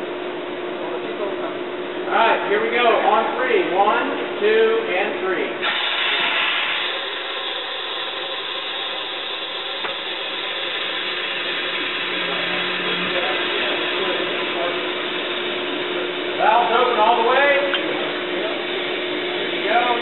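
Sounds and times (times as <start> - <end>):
hydraulic jack rushing noise: 5.6 - 20.0.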